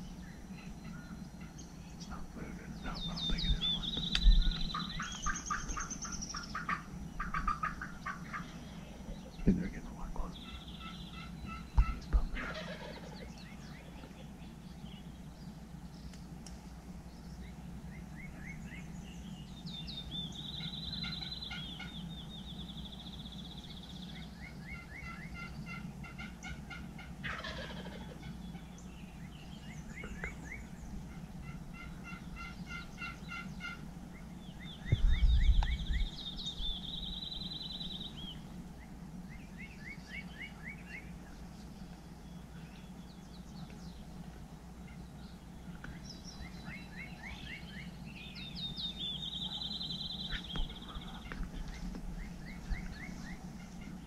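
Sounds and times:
turkeys gobbling: 0:00.5 - 0:14.4, 0:20.6 - 0:22.1, 0:24.4 - 0:28.9, 0:29.7 - 0:34.3, 0:49.2 - 0:54.0.

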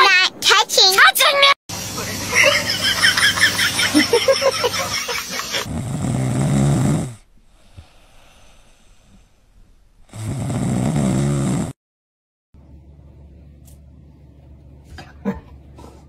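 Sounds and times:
dog snoring: 0:05.6 - 0:09.4, 0:10.0 - 0:11.8.

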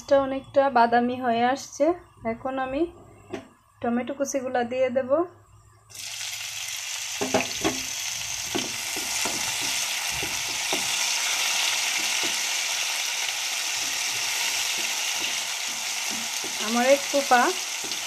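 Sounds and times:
tomatoes sizzling in oil: 0:05.9 - 0:18.0
spatula scraping and knocking pan: 0:08.5 - 0:12.8, 0:13.6 - 0:18.0.

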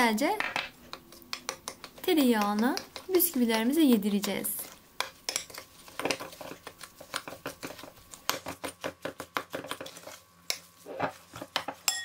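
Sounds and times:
spoon scraping glass bowl: 0:04.6 - 0:08.4.

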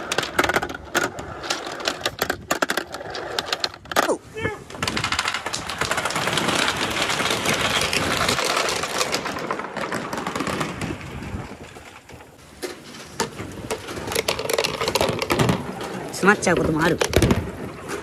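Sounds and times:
balls rolling and clacking: 0:00.0 - 0:18.0.

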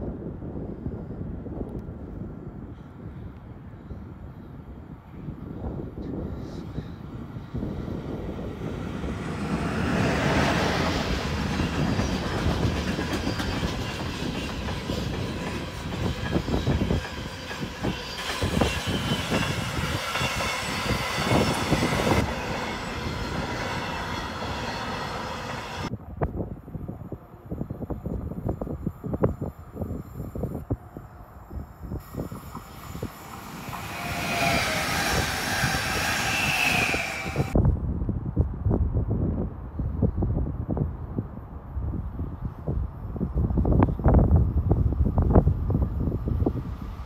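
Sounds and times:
electric locomotive rumble: 0:06.0 - 0:25.9, 0:26.5 - 0:37.6.

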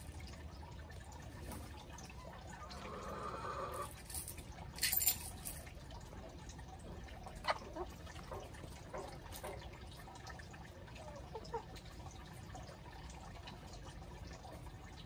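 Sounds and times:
chickens pecking and rustling leaves: 0:00.8 - 0:04.8.

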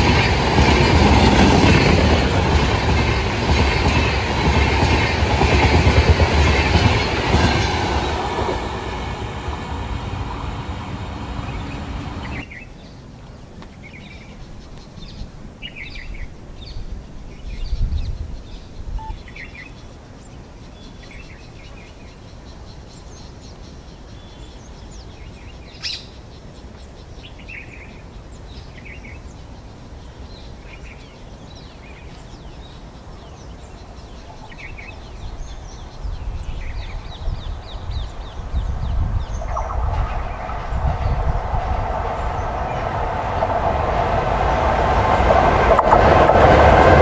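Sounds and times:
train rumble: 0:00.0 - 0:12.5, 0:31.9 - 0:47.0.

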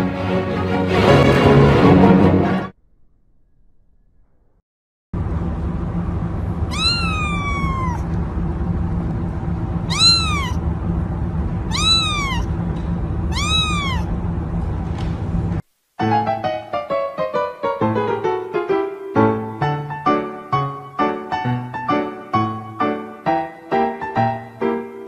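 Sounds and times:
low background hum: 0:05.2 - 0:15.6
kitten meowing: 0:06.7 - 0:08.2, 0:09.8 - 0:10.6, 0:11.6 - 0:12.5, 0:13.3 - 0:14.1.

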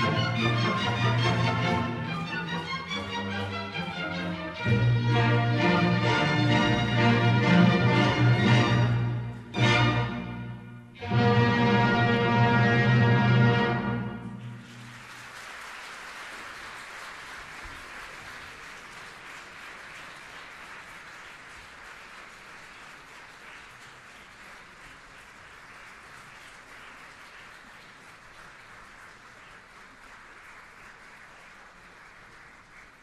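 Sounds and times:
audience applauding: 0:00.0 - 0:07.4, 0:14.2 - 0:33.0.

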